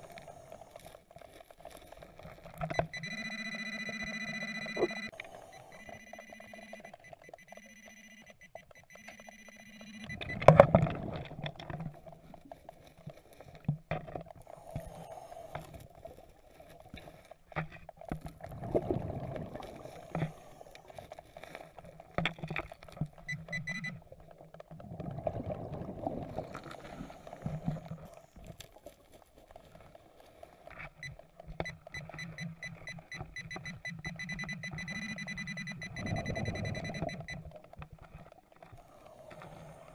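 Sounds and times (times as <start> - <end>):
pinpointer beeping: 2.6 - 10.6, 23.3 - 24.0, 31.0 - 37.4
diver's exhaled bubbles: 18.4 - 20.5, 24.8 - 28.1.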